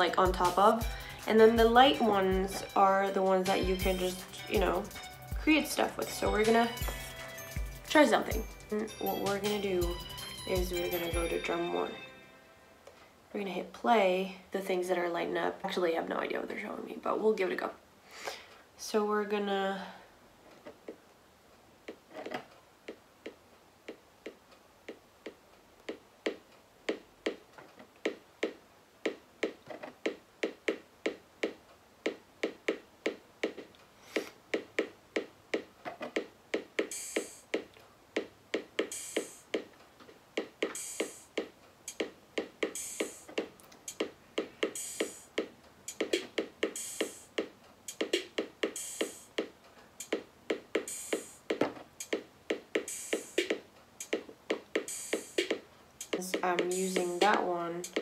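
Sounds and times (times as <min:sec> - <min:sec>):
electronic drum pattern: 0:00.0 - 0:11.8, 0:28.0 - 0:39.7, 0:40.3 - 0:58.0
hissy hi-hat hits: 0:36.6 - 0:37.6, 0:38.2 - 0:39.6, 0:40.4 - 0:58.0.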